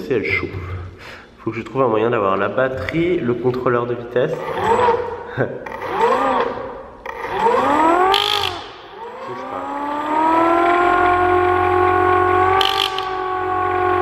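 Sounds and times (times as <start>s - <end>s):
mechanical siren wailing: 4.4s - 5.1s, 5.7s - 14.0s.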